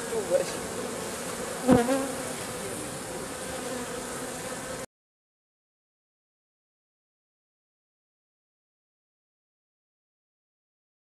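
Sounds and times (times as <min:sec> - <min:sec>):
honeybees buzzing: 0:00.0 - 0:04.9.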